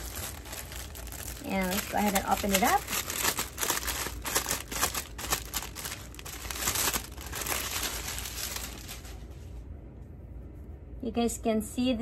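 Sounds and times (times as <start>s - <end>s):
plastic bag crinkling: 0.0s - 9.5s.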